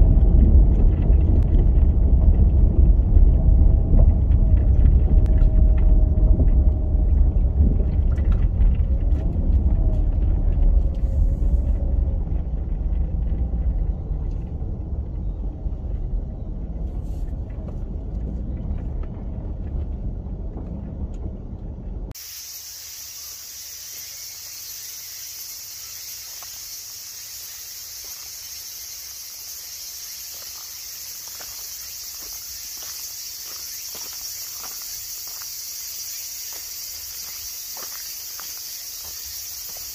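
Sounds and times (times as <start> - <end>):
car rumbling on gravel: 0.0 - 22.1, 27.4 - 39.9
high-pitched insect chorus: 22.2 - 39.9
footsteps on gravel: 27.9 - 29.2, 29.8 - 39.9.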